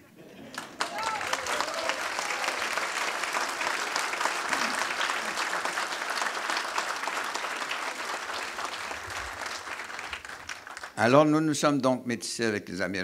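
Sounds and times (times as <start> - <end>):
audience applauding: 0.5 - 11.2.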